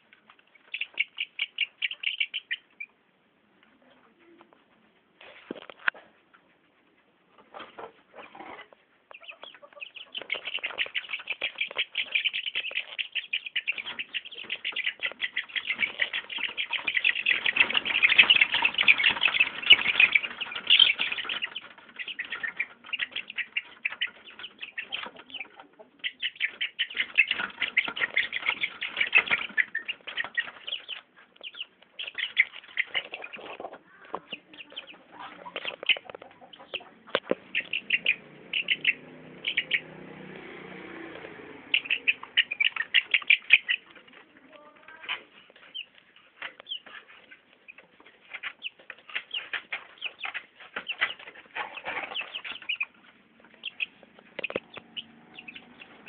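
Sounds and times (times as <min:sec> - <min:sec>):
chickens flapping wings: 0:10.2 - 0:25.4.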